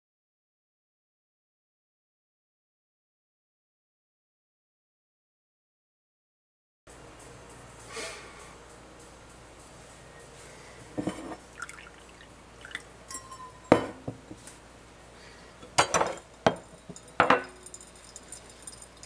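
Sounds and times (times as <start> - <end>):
coffee dripping into glass: 11.6 - 13.7, 16.5 - 19.0
glass and metal knocks and clinks: 13.1 - 14.2, 15.8 - 18.0.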